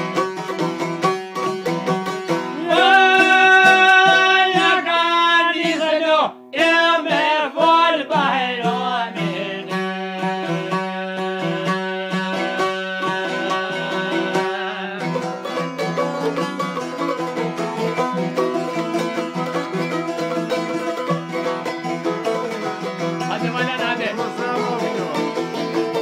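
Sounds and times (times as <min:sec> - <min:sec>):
plucked string folk music: 0:00.0 - 0:26.0.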